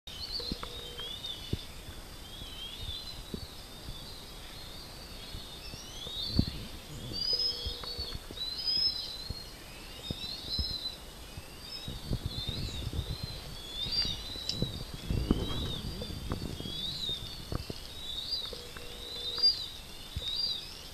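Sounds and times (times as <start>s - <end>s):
birds chirping: 0.1s - 20.9s
low rumbles and knocks: 13.9s - 17.8s.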